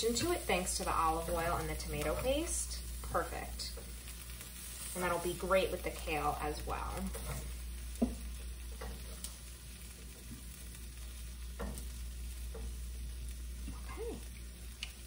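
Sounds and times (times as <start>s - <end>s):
tongs scraping in frying pan: 0.0s - 13.6s
faint sizzle: 0.0s - 15.0s.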